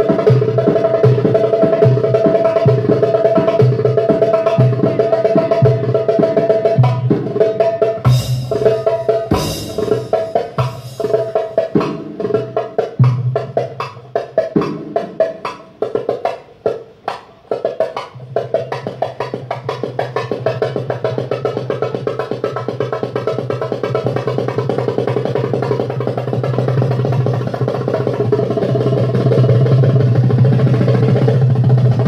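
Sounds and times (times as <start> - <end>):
steady held backing tones: 0.0 - 14.2
loud harsh drum hits: 0.0 - 16.0, 17.8 - 32.0
goblet drum fast strokes and rolls: 0.0 - 16.3, 17.5 - 32.0.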